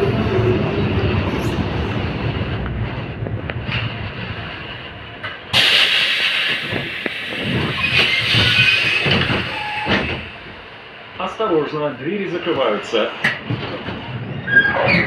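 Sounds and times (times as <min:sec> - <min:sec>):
tram slowing to a stop: 0:00.0 - 0:15.0
loud hiss: 0:05.6 - 0:10.3.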